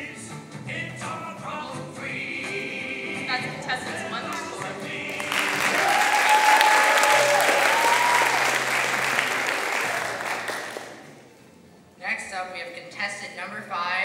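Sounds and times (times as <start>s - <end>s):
audience applause: 4.6s - 11.2s.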